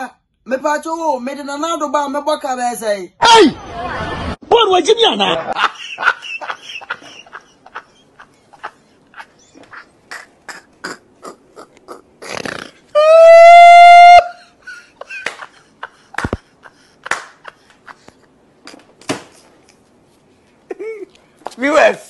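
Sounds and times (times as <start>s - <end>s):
man laughing with gasps: 14.2s - 18.8s, 20.7s - 21.2s.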